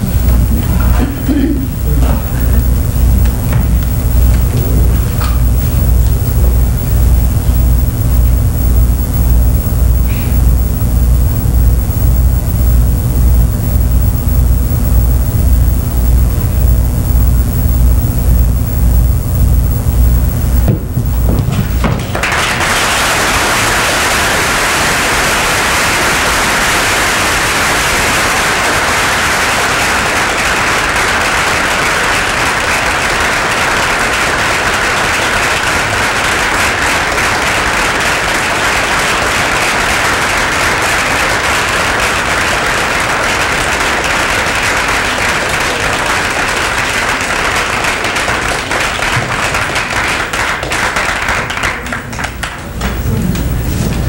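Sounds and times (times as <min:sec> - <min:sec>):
audience applauding: 0:00.0 - 0:07.0, 0:20.2 - 0:53.1.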